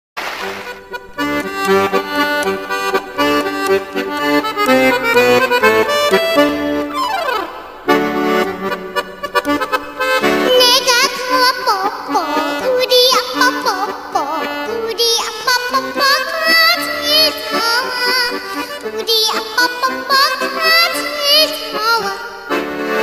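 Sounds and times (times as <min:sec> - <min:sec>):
band playing melody over chords: 0:00.4 - 0:10.6.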